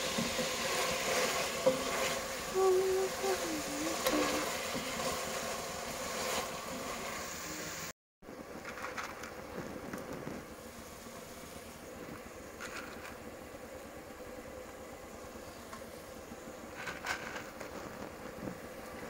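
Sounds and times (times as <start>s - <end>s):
steady mechanical hum: 0.0s - 19.0s.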